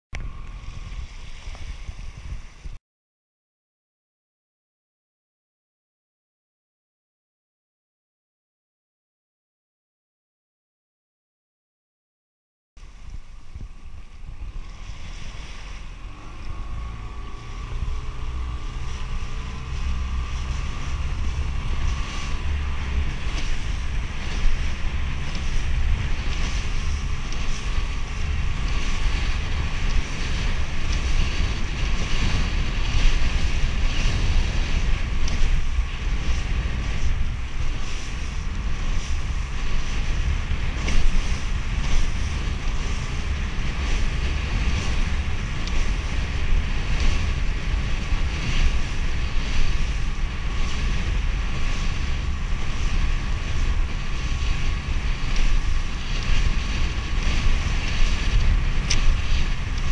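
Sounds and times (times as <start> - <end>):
boat engine running: 0.1 - 2.8, 12.8 - 59.9
wind buffeting microphone: 0.1 - 2.8, 12.8 - 59.9
water slapping against hull: 12.8 - 59.9.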